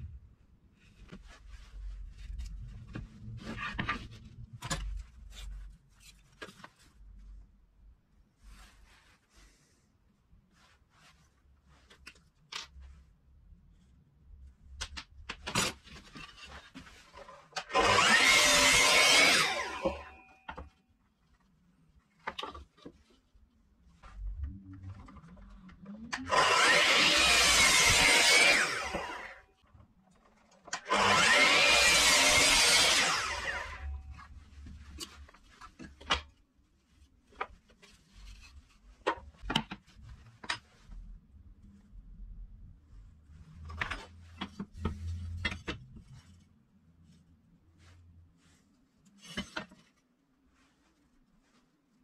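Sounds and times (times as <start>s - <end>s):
power tool running on wood: 17.7s - 20.1s, 26.3s - 29.4s, 30.8s - 33.8s.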